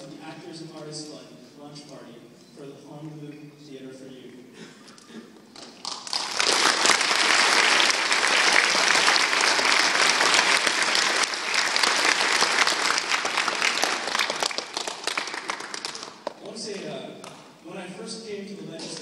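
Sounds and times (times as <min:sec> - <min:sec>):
audience applauding: 0:05.6 - 0:16.4.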